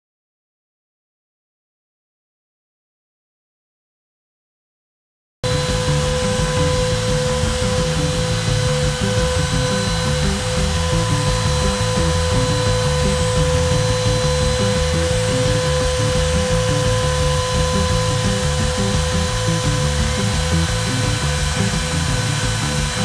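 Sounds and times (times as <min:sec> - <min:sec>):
background music: 0:05.4 - 0:23.0
router high-pitched whine: 0:05.4 - 0:23.0.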